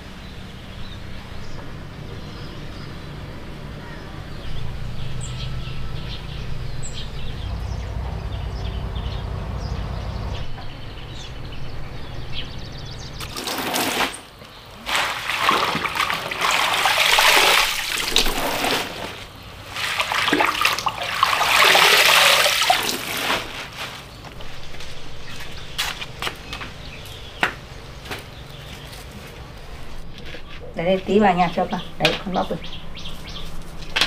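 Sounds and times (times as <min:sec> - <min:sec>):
water pouring into plastic basin: 0:13.2 - 0:23.6.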